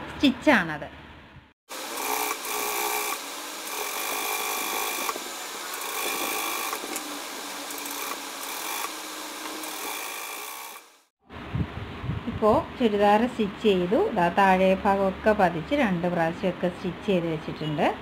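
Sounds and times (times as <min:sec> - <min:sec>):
electric sewing machine running: 0:01.7 - 0:11.1.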